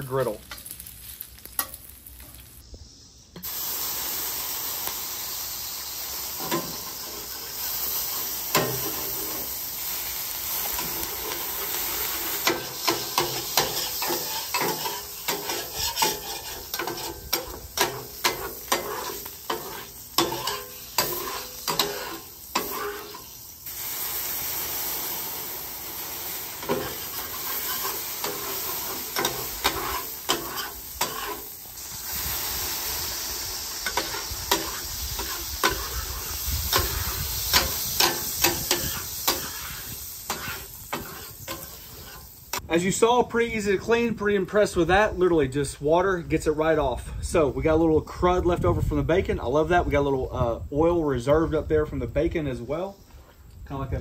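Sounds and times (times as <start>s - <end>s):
water sizzling on hot griddle: 0.0s - 44.1s
metal scraper scraping steel: 12.4s - 23.2s, 26.6s - 31.5s, 36.7s - 42.3s.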